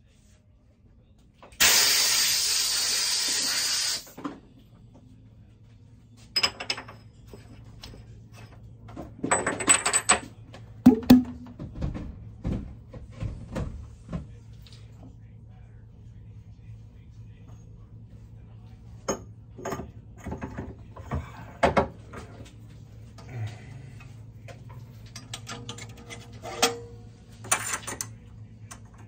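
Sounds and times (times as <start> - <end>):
metal parts clinking and knocking: 9.2 - 10.3, 25.0 - 26.8.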